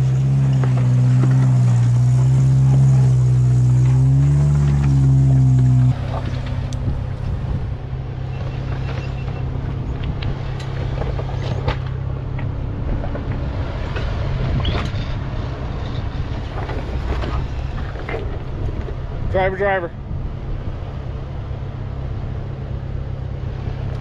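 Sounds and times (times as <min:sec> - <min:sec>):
tyres crunching on rock and gravel: 0:00.0 - 0:07.7
off-road engine running slowly: 0:00.0 - 0:24.0.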